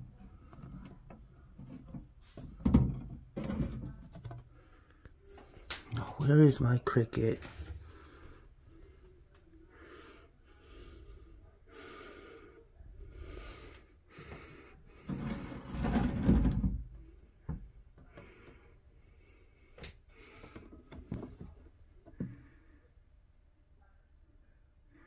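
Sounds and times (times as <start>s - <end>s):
plastic boxes rustling and knocking: 0.0s - 4.5s, 15.0s - 17.7s.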